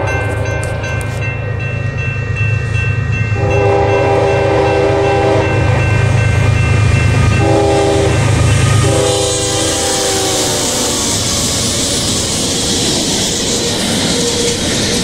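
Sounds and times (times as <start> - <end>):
diesel engines rumbling: 0.0 - 15.0
train air horn blasts: 3.4 - 5.9, 7.3 - 11.2.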